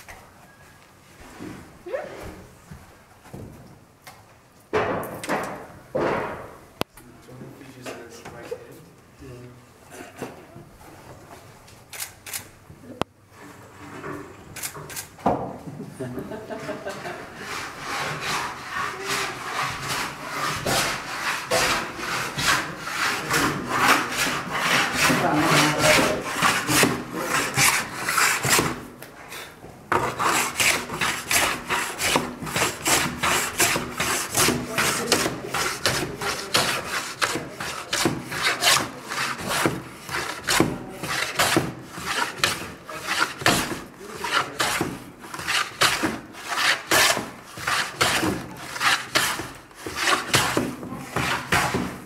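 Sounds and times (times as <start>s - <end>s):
hand plane shaving wood: 16.6s - 28.9s, 29.9s - 52.0s.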